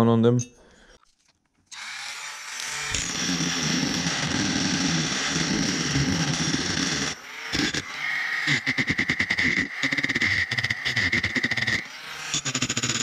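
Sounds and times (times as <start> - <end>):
rotary tool grinding metal: 1.7 - 13.0.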